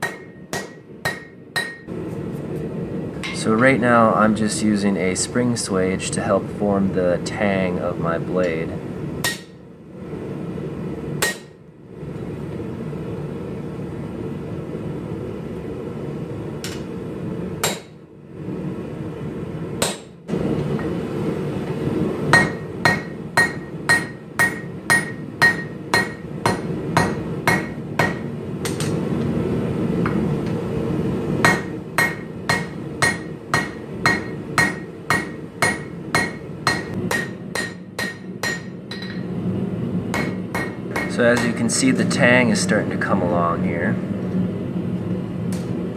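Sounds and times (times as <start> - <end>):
hammer striking steel on anvil: 0.0 - 1.9, 3.2 - 3.7, 9.2 - 9.6, 11.2 - 11.6, 17.6 - 18.0, 19.8 - 20.2, 22.3 - 29.0, 31.4 - 39.3, 40.1 - 41.7
gas forge burner noise: 0.0 - 45.9.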